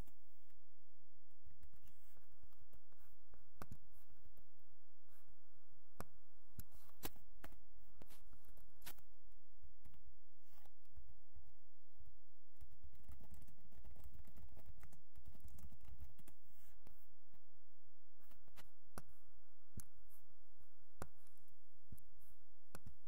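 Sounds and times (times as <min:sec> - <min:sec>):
computer keyboard typing: 0:12.6 - 0:16.4.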